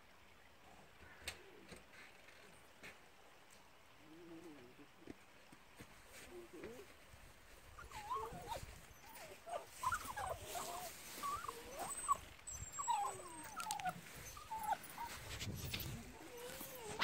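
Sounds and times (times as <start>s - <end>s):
dog whining and whimpering: 7.8s - 17.0s.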